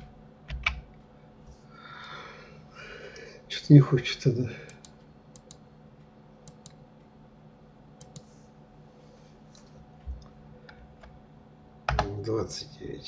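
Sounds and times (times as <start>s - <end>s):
computer mouse and keyboard clicking: 0.0s - 0.9s, 4.7s - 5.6s, 6.4s - 6.8s, 8.0s - 8.3s
faint steady hum: 0.0s - 13.0s.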